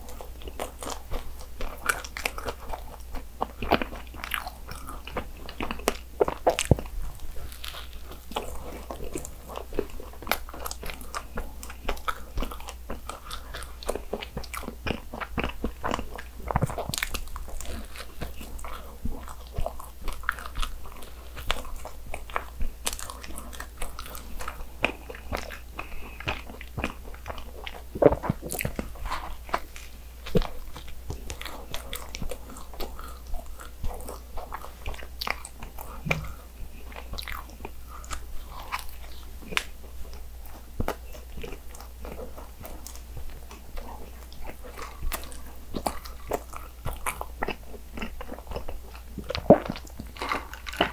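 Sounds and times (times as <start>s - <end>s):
biting and chewing pastry: 0.0s - 50.9s
wet mouth clicks: 24.9s - 36.4s.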